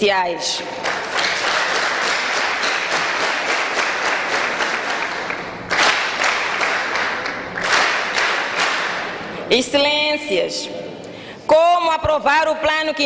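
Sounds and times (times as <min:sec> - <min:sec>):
many hands clapping: 0:00.7 - 0:09.4.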